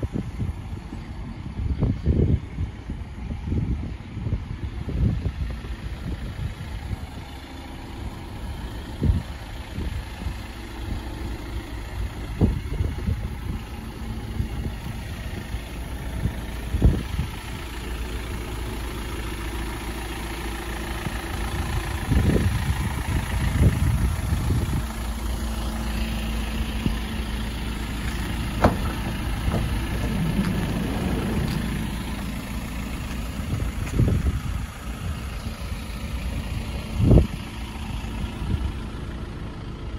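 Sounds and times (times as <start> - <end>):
diesel engine idling: 0.0 - 39.9
short thumps: 28.0 - 32.1.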